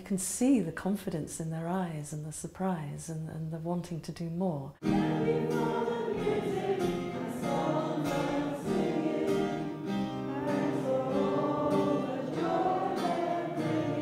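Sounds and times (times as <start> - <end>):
choir singing: 4.8 - 14.0.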